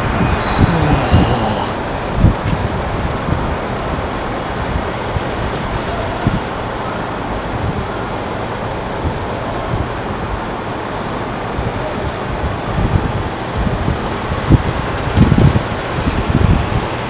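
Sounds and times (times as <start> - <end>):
wind buffeting microphone: 0.0 - 6.8, 11.5 - 17.0.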